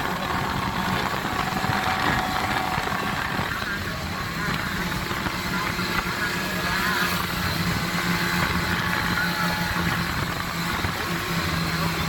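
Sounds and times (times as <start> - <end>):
snowmobile engine running steadily: 0.0 - 12.0.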